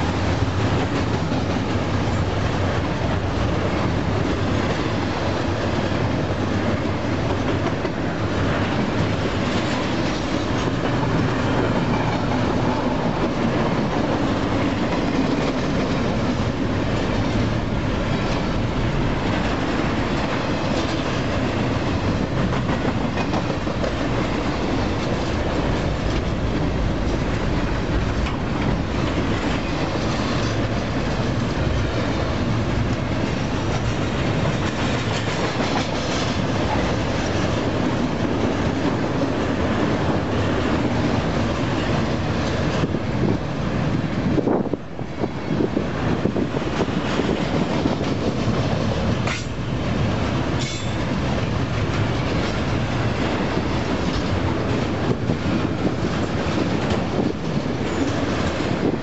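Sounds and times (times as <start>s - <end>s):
freight train wheels rumbling on rail: 0.0s - 59.0s
rail clicks: 0.0s - 59.0s.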